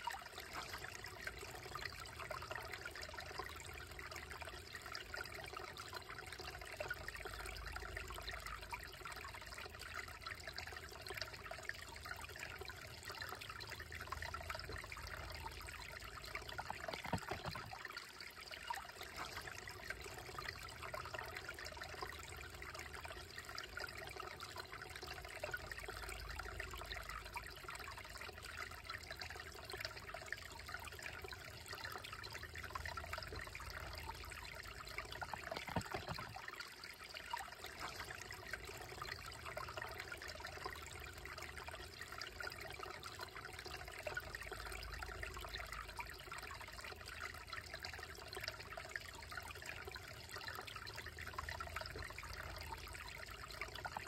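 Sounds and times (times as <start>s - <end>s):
creek babbling over rocks: 14.6s - 23.0s, 32.2s - 45.8s.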